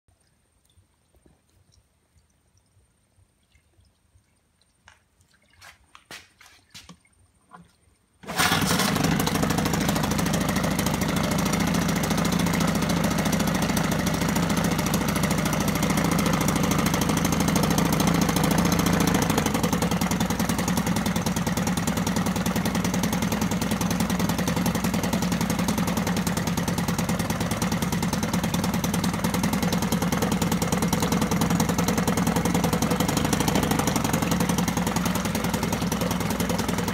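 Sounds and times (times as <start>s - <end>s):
outboard motor running: 8.2s - 36.9s.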